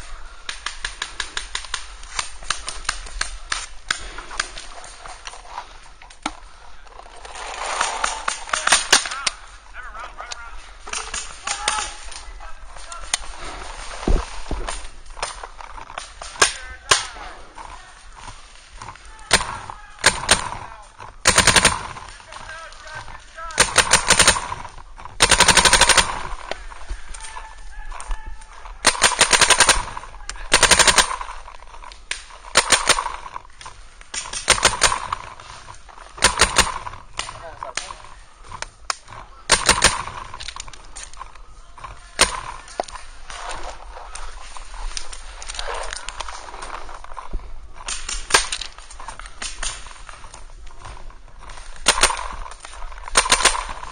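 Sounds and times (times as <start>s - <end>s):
paintball markers firing: 18.2s - 27.2s, 28.6s - 43.0s, 51.4s - 53.9s.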